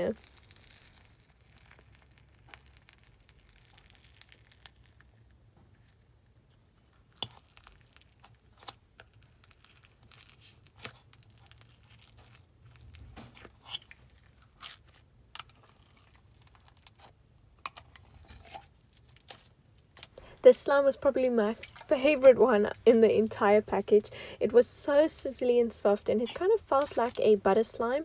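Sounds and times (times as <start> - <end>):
slime crackling and popping: 0.0 - 20.2.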